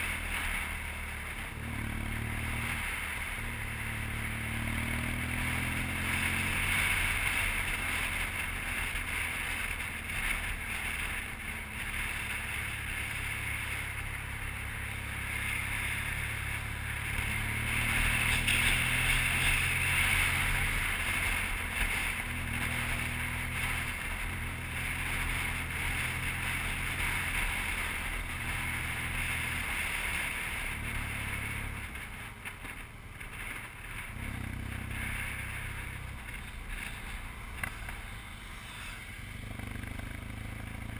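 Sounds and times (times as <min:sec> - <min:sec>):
motorcycle engine running: 0:00.0 - 0:40.9.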